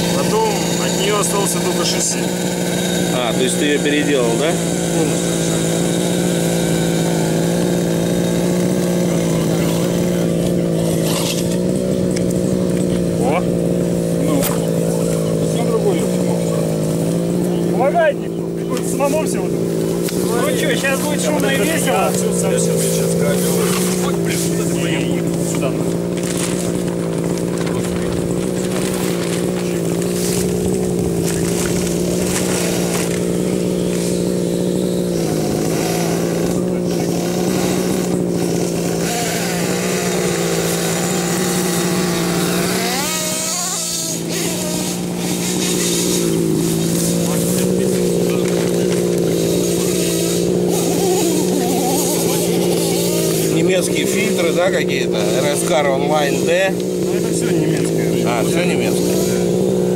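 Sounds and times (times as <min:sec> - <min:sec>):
two-stroke engine idling: 0:00.0 - 0:59.9.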